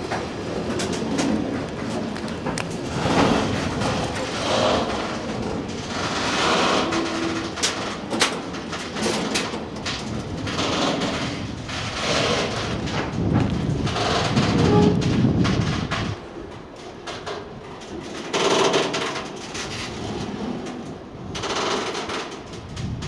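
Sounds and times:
freight train rolling past: 0:00.0 - 0:18.2
wheels clicking over rail joints: 0:00.0 - 0:23.0
wheel squeal: 0:06.0 - 0:07.6, 0:14.0 - 0:15.1.

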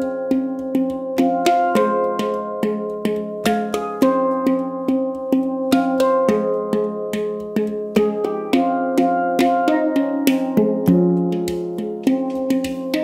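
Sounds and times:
handpan melody: 0:00.0 - 0:13.0.

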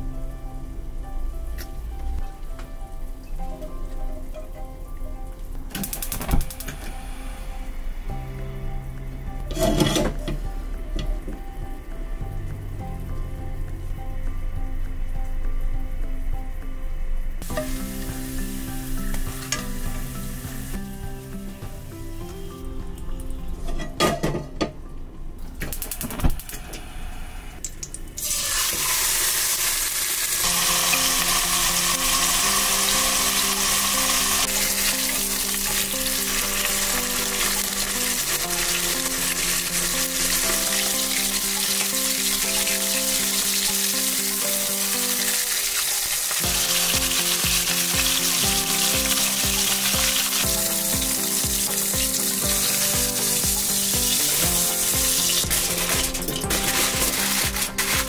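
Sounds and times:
garlic frying in oil: 0:17.4 - 0:21.4, 0:27.8 - 0:58.0
steak sizzling loudly: 0:17.4 - 0:22.6, 0:28.2 - 0:58.0.

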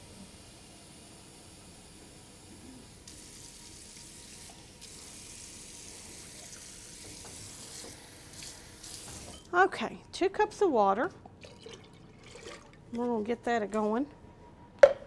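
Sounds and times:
faucet running water into pitcher: 0:03.1 - 0:09.5, 0:11.4 - 0:12.8.

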